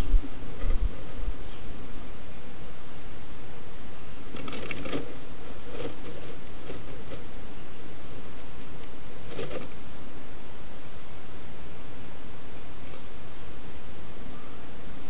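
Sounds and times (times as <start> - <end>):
bird rustling in nest: 0.0 - 1.5, 4.3 - 7.4, 8.2 - 9.8
steady hiss: 0.0 - 15.0.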